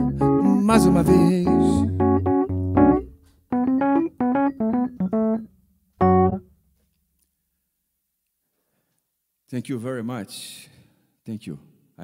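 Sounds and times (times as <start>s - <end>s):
bass line: 0.0s - 5.4s, 6.0s - 6.4s
electric keyboard chords: 0.0s - 6.6s.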